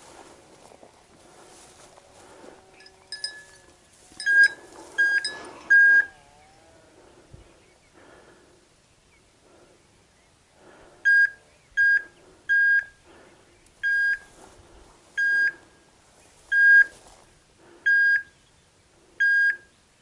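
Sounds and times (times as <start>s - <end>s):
faint rustling of grass: 0.0s - 20.0s
short high beeps: 4.2s - 6.2s.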